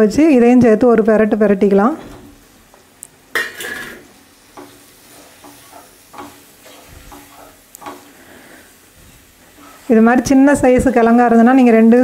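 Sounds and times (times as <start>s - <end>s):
food sizzling in a pan: 2.2s - 12.0s
spatula scraping and tapping pan: 3.3s - 11.2s.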